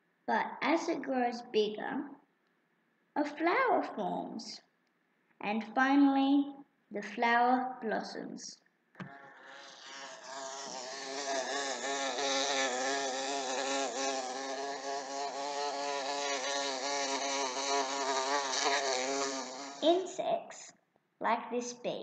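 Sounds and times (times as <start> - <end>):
bee buzzing in flight: 9.0 - 20.1.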